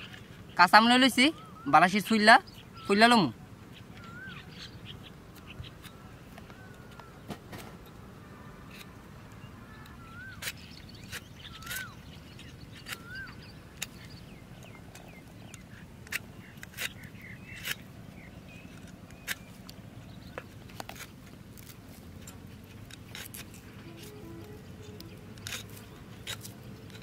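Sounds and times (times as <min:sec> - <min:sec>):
birds chirping: 0:00.0 - 0:27.0
bird whistling: 0:01.1 - 0:03.0, 0:03.8 - 0:05.9, 0:09.7 - 0:14.1, 0:23.8 - 0:25.9
peeler scraping mango skin: 0:08.7 - 0:27.0.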